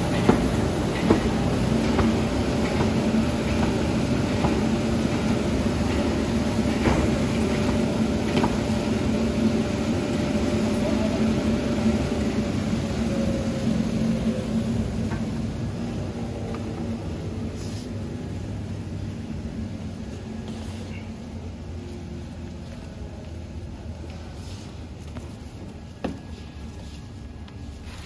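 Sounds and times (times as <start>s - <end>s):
machine motors and belts humming: 0.0s - 17.5s.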